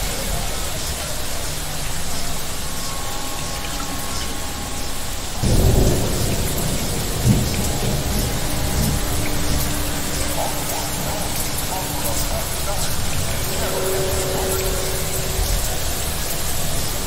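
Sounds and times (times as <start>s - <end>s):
faint steady tones: 0.0s - 17.0s
steady rain: 0.0s - 17.0s
thunder rumble: 5.2s - 17.0s
sharp thunder crack: 5.4s - 11.7s.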